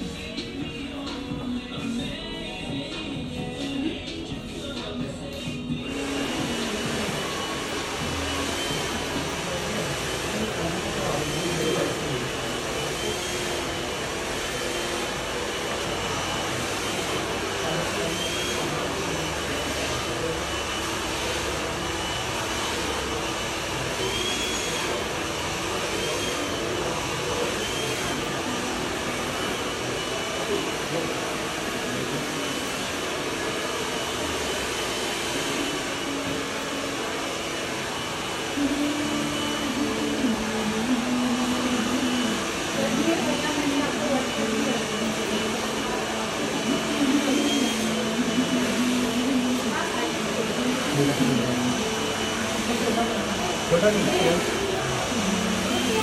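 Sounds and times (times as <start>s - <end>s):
hair dryer running: 0.0s - 56.0s
person speaking: 38.6s - 56.0s.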